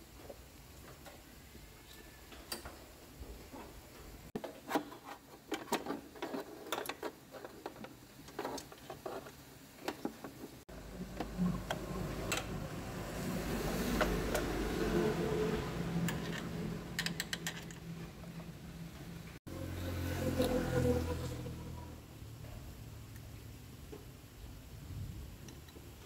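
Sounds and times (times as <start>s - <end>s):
hand tools clicking and tapping: 16.0s - 18.5s.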